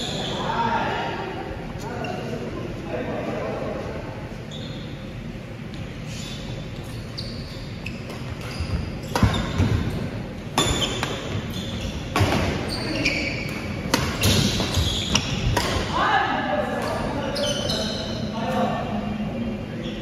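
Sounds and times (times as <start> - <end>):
shoes squeaking on wooden floor: 6.0 - 13.5, 14.2 - 15.4
rackets hitting shuttlecock: 9.1 - 9.9, 13.5 - 15.9.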